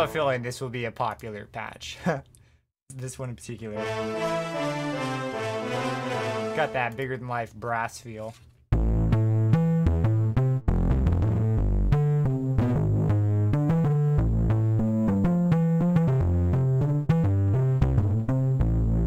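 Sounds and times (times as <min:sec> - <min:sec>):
distorted synthesizer melody: 0:03.8 - 0:06.9.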